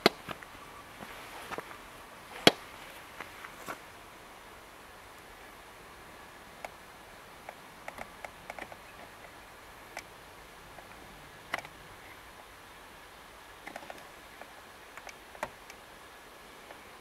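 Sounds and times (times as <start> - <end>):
faint steady hiss: 0.0 - 17.0
small sharp clicks: 7.5 - 9.4, 13.6 - 15.8.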